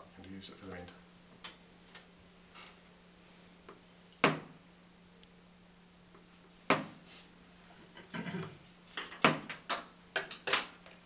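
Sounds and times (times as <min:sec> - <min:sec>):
sharp knocks on wooden table: 0:04.2 - 0:04.5.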